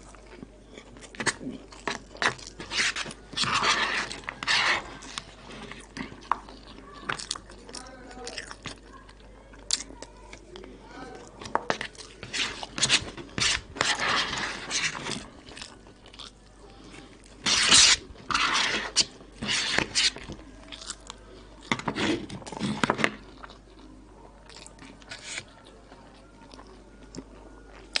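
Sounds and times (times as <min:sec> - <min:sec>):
wet chewing and crunching: 0:00.0 - 0:28.0
plastic spoon scraping paper bowl: 0:01.2 - 0:07.2, 0:11.4 - 0:15.5, 0:17.4 - 0:20.4, 0:21.7 - 0:23.3, 0:25.0 - 0:25.6.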